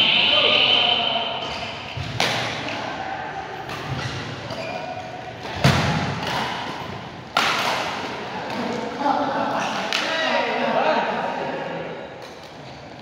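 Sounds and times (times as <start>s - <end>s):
racket hitting shuttlecock: 1.9s - 2.8s, 3.6s - 8.7s.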